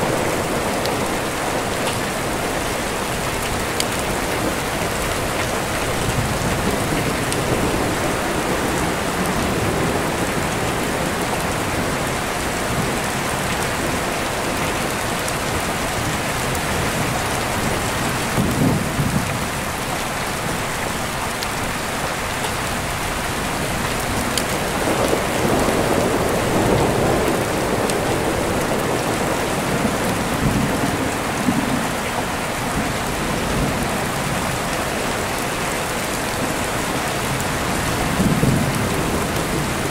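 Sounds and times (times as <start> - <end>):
rain falling: 0.0 - 39.9
deep rolling thunder: 16.8 - 19.6, 37.3 - 39.9.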